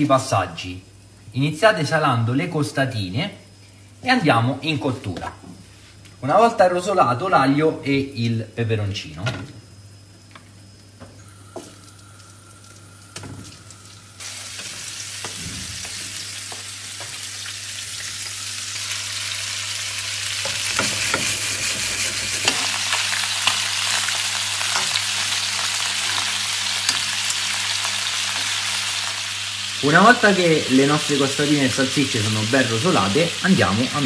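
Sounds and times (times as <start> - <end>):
meat sizzling in a pan: 10.6 - 34.0.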